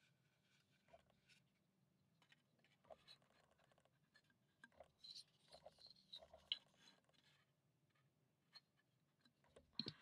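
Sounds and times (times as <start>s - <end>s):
small clicks of wooden parts: 2.2s - 10.0s.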